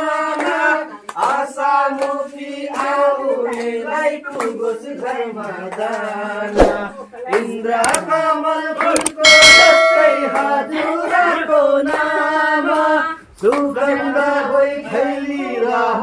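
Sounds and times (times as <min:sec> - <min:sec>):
group singing in chorus: 0:00.0 - 0:16.0
sharp knocks: 0:07.8 - 0:08.0.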